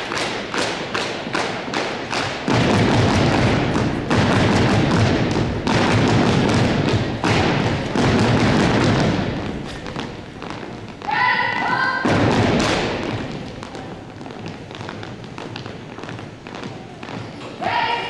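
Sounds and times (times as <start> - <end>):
stomping on wooden floor: 1.4 - 11.2.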